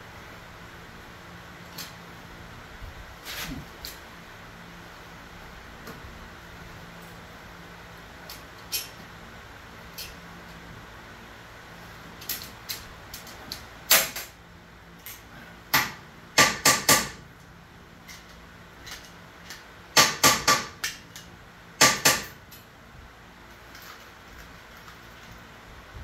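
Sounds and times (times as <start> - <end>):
sharp metallic knocks: 20.0 - 21.0.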